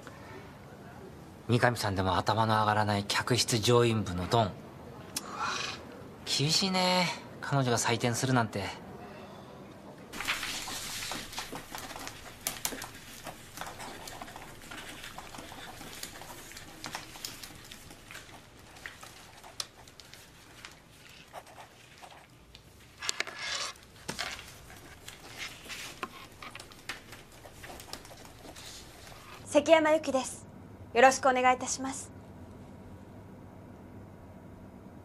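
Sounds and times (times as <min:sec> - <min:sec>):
papers rustling: 0:10.1 - 0:29.4
pencils scratching and tapping: 0:10.2 - 0:29.4.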